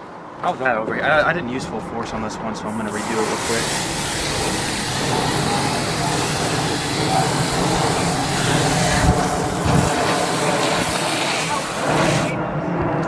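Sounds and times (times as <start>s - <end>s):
hose spray nozzle hissing: 2.8s - 12.4s.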